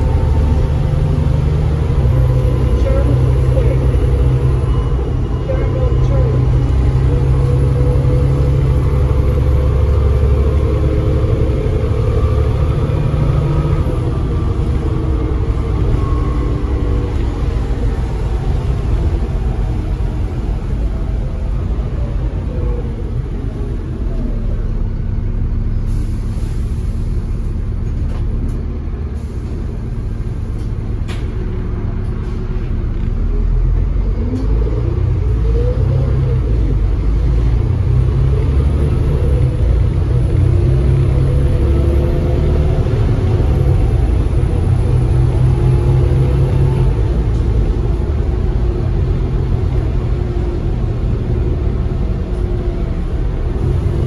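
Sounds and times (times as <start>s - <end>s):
bus diesel engine rumble: 0.0s - 54.0s
road noise: 0.0s - 54.0s.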